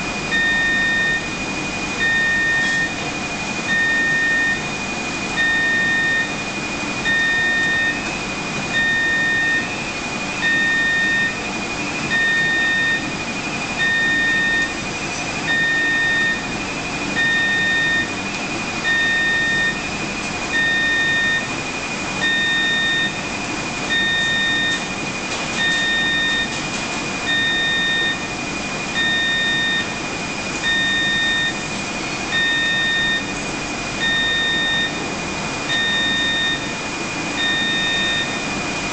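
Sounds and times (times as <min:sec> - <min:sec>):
equipment hum: 0:00.0 - 0:38.9
electronic alarm beeping: 0:00.2 - 0:03.0, 0:03.6 - 0:08.1, 0:08.7 - 0:14.8, 0:15.4 - 0:18.2, 0:18.8 - 0:19.9, 0:20.5 - 0:21.6, 0:22.2 - 0:23.3, 0:23.9 - 0:25.0, 0:25.6 - 0:26.6, 0:27.2 - 0:30.0, 0:30.6 - 0:33.4, 0:34.0 - 0:35.1, 0:35.7 - 0:36.8, 0:37.4 - 0:38.5.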